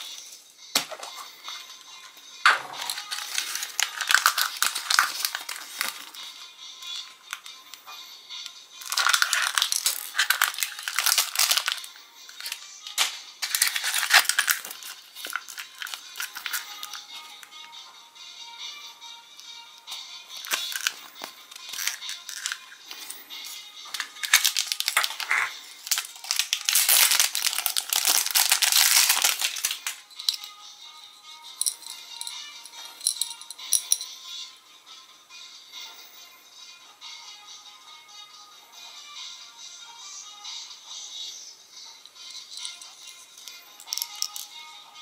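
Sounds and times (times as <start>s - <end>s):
background music: 0.0s - 45.0s
wrapper crinkling: 2.8s - 6.2s, 8.8s - 17.5s, 20.4s - 30.5s, 42.5s - 44.5s
plastic capsule clicks: 24.0s - 30.5s.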